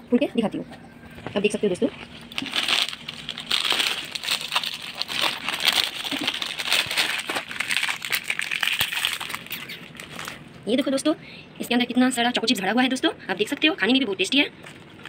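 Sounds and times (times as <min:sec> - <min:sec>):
plastic wrapper crinkling: 0:02.1 - 0:10.5.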